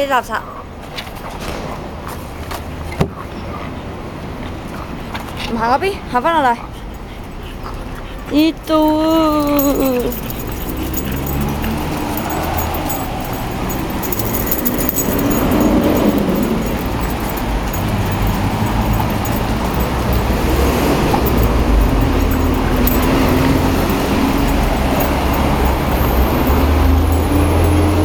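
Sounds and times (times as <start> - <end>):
busy street noise: 0.0 - 28.0
vehicle engines droning: 7.6 - 28.0.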